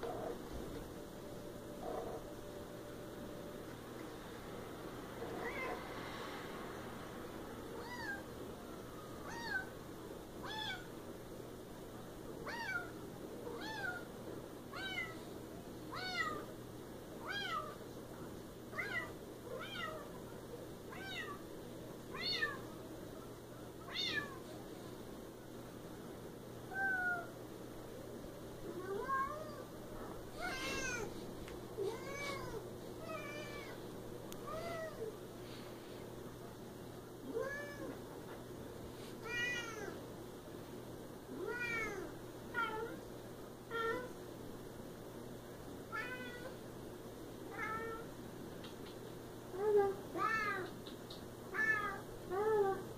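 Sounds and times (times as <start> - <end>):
cat meowing: 9.2 - 9.7, 10.4 - 10.9, 14.7 - 15.2, 23.9 - 24.4, 30.4 - 31.1, 39.2 - 40.0, 41.4 - 43.0, 45.9 - 46.6, 51.5 - 52.0.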